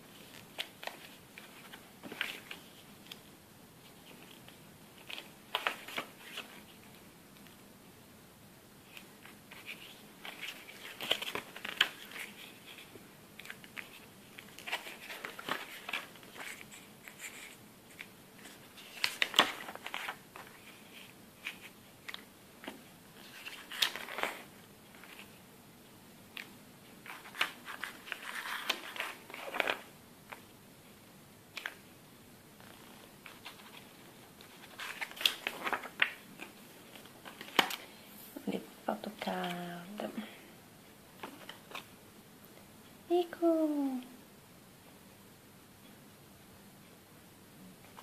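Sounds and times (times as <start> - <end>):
paper pages rustling: 0.1 - 7.6, 8.8 - 25.4, 26.3 - 30.4, 32.6 - 38.0, 41.2 - 41.9.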